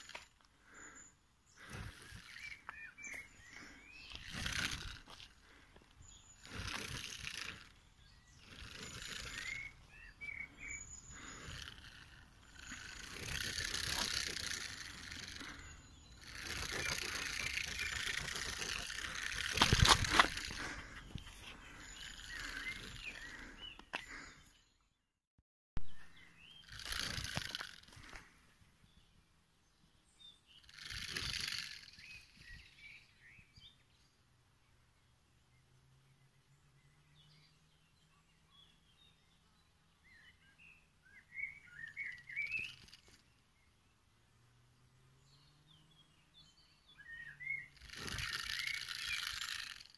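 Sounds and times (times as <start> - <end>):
small birds chirping: 0.0 - 25.1, 25.8 - 49.9
porcupine rattling quills: 1.6 - 5.6, 6.2 - 24.2, 26.6 - 28.3, 30.6 - 32.4, 42.0 - 43.3, 47.6 - 49.9.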